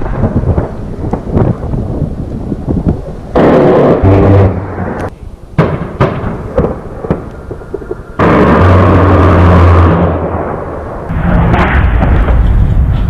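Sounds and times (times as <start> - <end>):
rotary cannon burst: 0.0 - 13.0
sharp bangs: 3.3 - 13.0.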